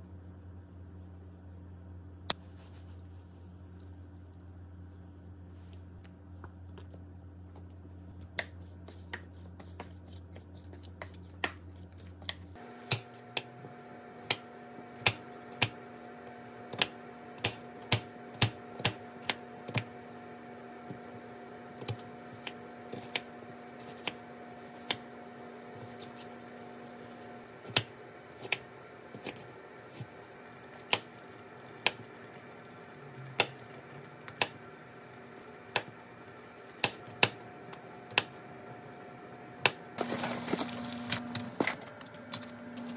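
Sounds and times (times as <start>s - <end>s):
faint steady hum: 0.0s - 42.9s
knife chopping on wooden board: 8.3s - 13.5s.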